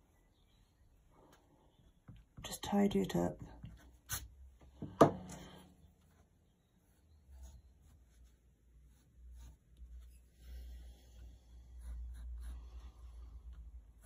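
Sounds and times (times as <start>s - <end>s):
pencil scratching on paper: 6.1s - 10.8s, 11.8s - 12.6s.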